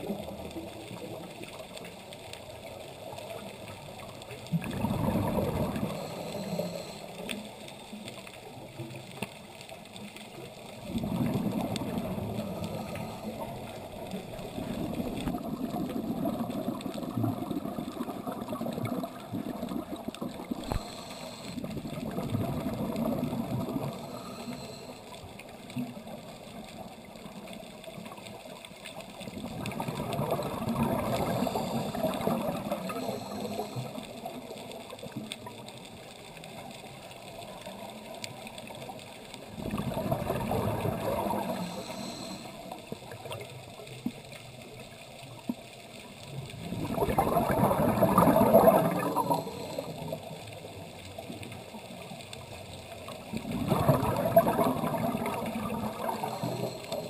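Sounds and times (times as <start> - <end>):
quiet water sound: 0.0 - 57.0
exhaled breath bubbling underwater: 4.5 - 7.5, 10.8 - 25.1, 29.4 - 34.3, 39.5 - 43.4, 46.6 - 50.4, 53.2 - 57.0.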